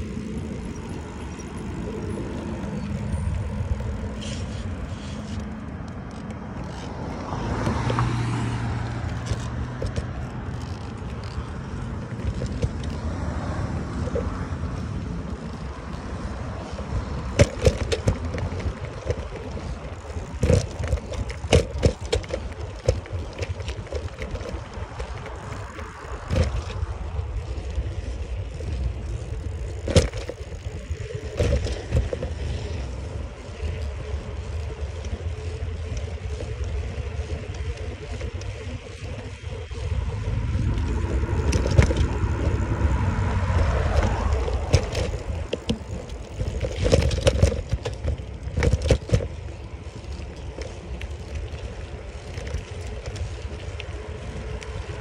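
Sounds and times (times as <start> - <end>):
bicycle knocks and rattles: 0.0 - 55.0
wind rumbling on microphone: 0.0 - 55.0.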